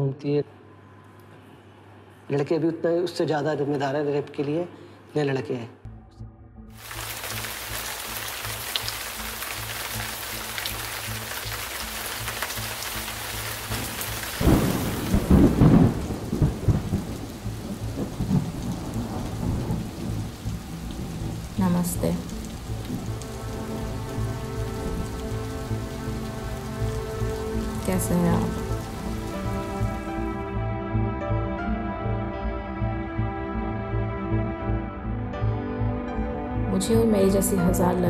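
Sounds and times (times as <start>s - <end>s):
soft sustained music chord: 5.9s - 38.0s
steady rain: 6.8s - 30.5s
thunder rumbling: 6.8s - 30.5s.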